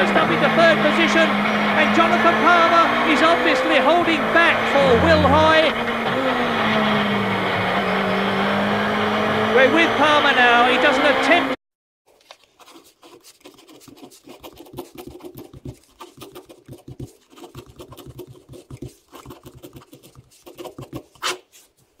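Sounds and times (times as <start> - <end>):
pencil scratching on paper: 12.4 - 21.8.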